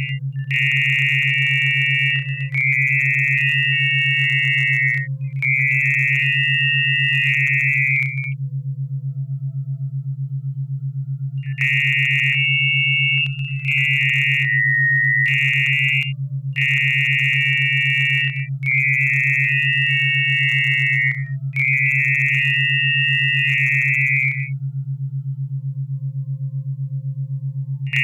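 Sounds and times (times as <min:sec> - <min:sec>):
low pulsing tone: 0:00.0 - 0:28.0
high warbling tone: 0:11.5 - 0:21.2.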